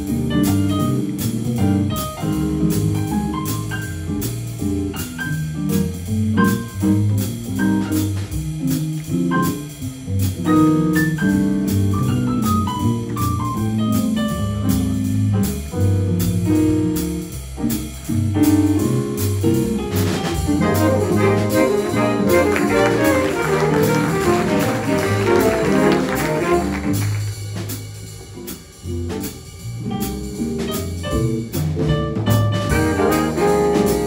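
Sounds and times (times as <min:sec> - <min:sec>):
steady cymbal beat: 0:00.0 - 0:34.0
walking bass line: 0:00.0 - 0:34.0
keyboard solo line: 0:20.6 - 0:27.0.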